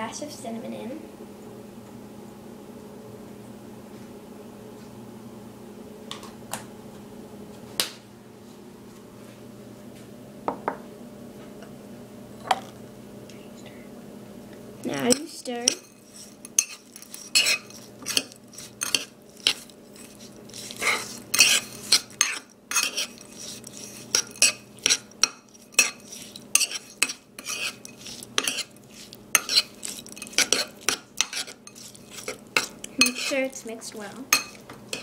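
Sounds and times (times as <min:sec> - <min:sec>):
spoon stirring thick mixture: 0:14.8 - 0:35.0
spoon clinking against bowl: 0:14.9 - 0:28.8, 0:29.4 - 0:33.4, 0:34.3 - 0:35.0.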